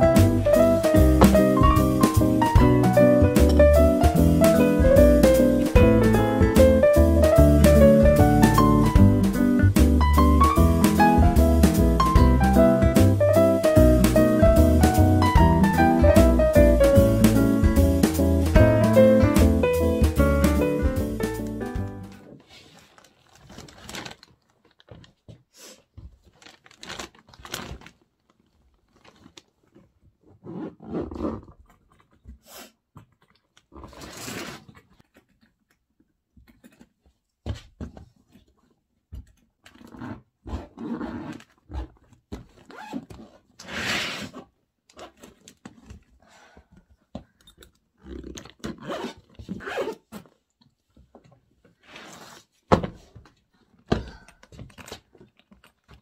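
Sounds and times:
suitcase knocks: 1.0 - 2.0
bags and clothes rustling: 22.1 - 25.2, 26.1 - 29.8.

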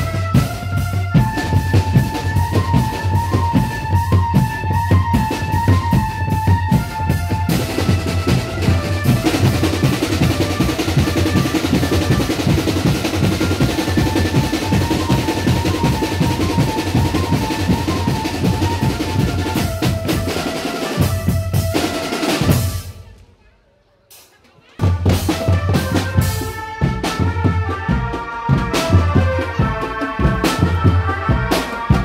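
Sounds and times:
bass drum beats: 0.0 - 20.3
high melody line: 0.0 - 22.7, 25.3 - 32.0
snare drum rolls: 0.0 - 23.2.

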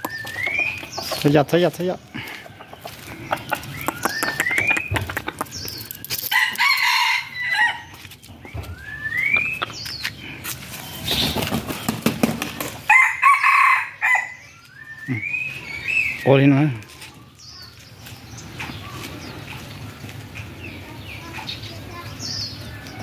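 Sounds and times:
rooster crowing: 6.3 - 7.9, 12.9 - 14.4
rising whistle-like calls: 8.5 - 9.7, 14.3 - 16.3.

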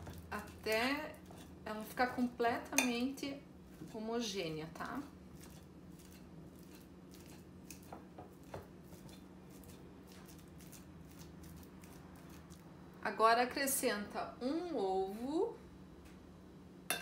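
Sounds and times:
fork mashing banana on plate: 0.0 - 2.0, 3.7 - 12.7.

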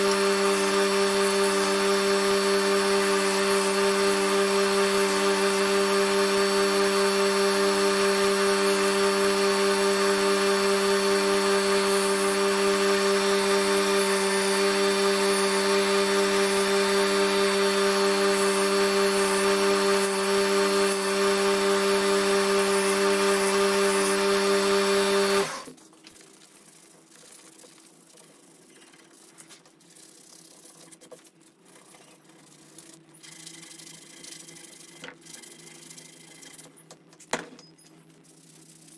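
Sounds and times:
belt grinder sanding wood: 0.0 - 36.8
handling and rubbing sounds: 25.7 - 33.2, 34.0 - 38.9.

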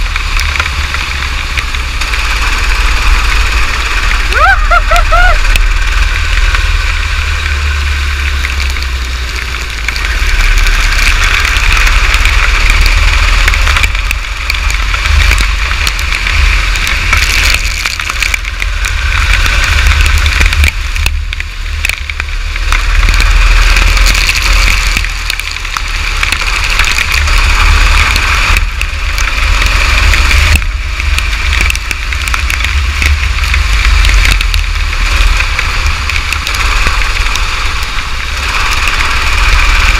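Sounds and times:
go-kart engine running: 0.0 - 39.9
rain on microphone: 0.0 - 39.9
wind rumble on microphone: 0.0 - 39.9.

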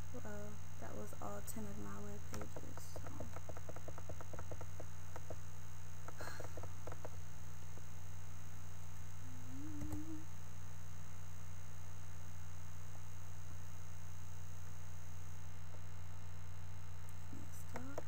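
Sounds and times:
steady electrical hum: 0.0 - 18.0
computer mouse clicking: 2.3 - 5.4.

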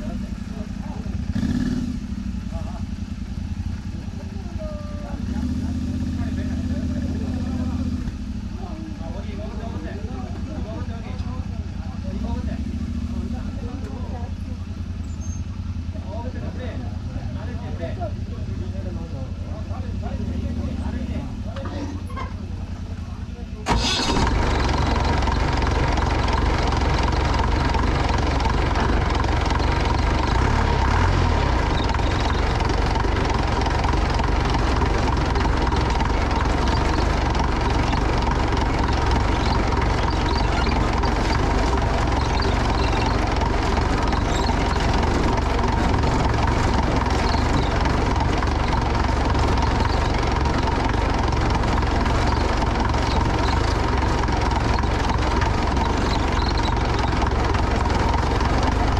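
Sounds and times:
vehicle engine rumbling: 0.0 - 58.9
constant rushing noise: 23.8 - 58.9.

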